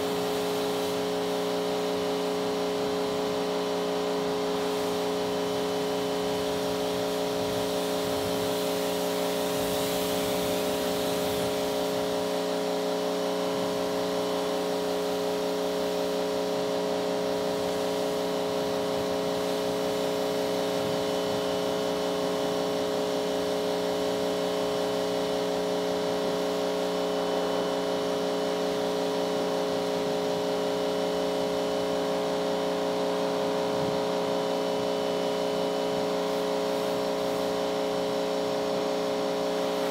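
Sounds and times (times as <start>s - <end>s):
pressure washer motor hum: 0.0s - 39.9s
water spray hissing: 0.0s - 39.9s.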